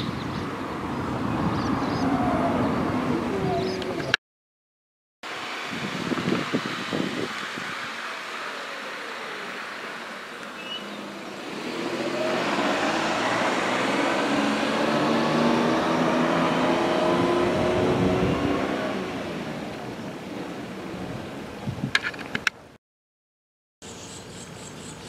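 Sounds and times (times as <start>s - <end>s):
vehicle engine passing: 10.9s - 21.5s.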